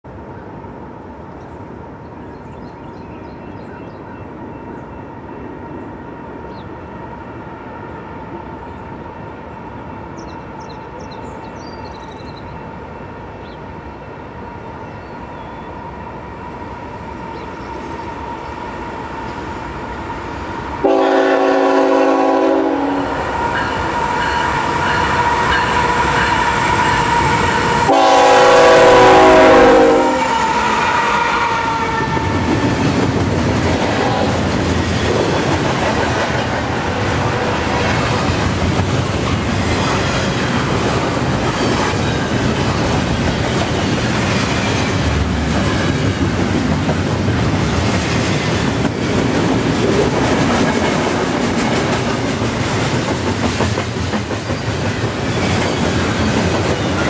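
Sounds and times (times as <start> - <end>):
diesel locomotives rumbling: 0.1 - 57.0
train air horn blasts: 20.8 - 32.5, 33.9 - 34.5.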